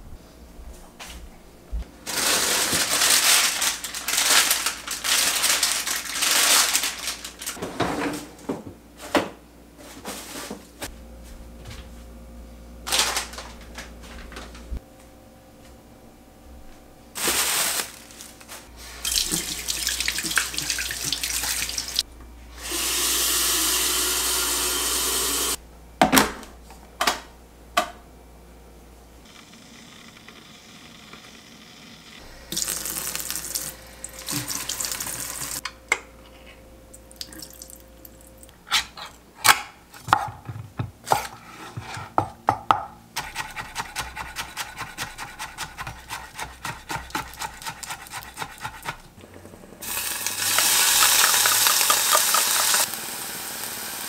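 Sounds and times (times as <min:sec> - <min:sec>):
tap water running: 0:19.0 - 0:22.0, 0:22.6 - 0:25.6, 0:32.5 - 0:35.6, 0:37.1 - 0:38.2, 0:49.8 - 0:54.0.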